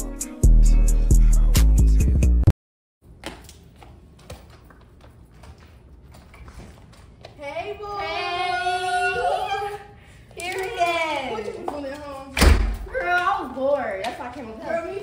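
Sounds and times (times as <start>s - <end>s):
music: 0.0s - 2.5s.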